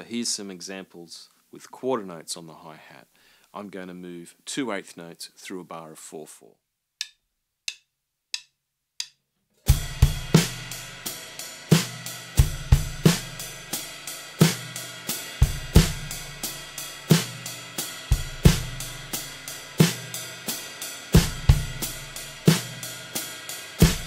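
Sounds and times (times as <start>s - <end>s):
drumstick clicks: 7.0s - 9.2s
drum kit groove: 9.7s - 24.0s.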